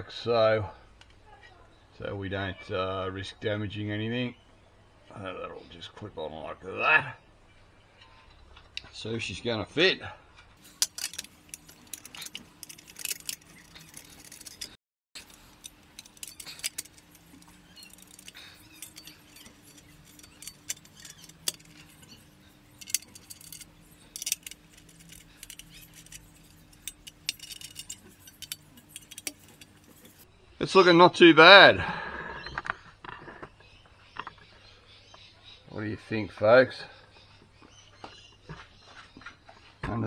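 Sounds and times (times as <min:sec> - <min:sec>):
metal fasteners clinking: 0:10.6 - 0:30.2
short clicks and rattles: 0:10.6 - 0:30.2.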